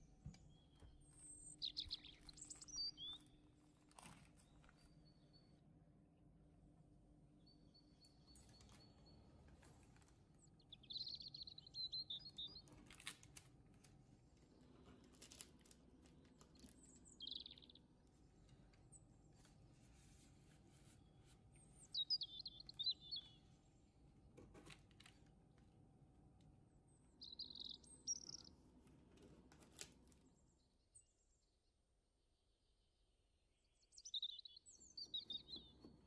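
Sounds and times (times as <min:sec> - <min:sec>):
bird chirping: 0:00.0 - 0:03.6, 0:04.3 - 0:05.6, 0:07.3 - 0:09.4, 0:10.3 - 0:12.9, 0:16.4 - 0:19.2, 0:21.0 - 0:23.8, 0:26.7 - 0:28.7, 0:32.4 - 0:36.0.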